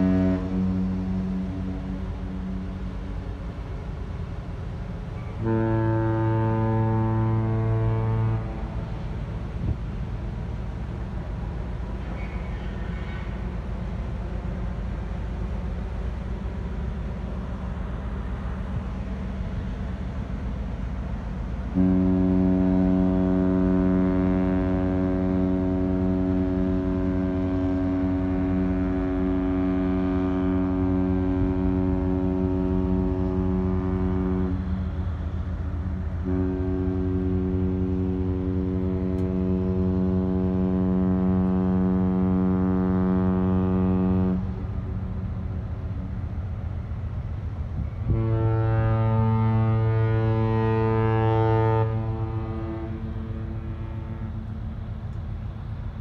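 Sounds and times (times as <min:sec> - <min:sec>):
ship's horn blasts: 0:00.0 - 0:56.0.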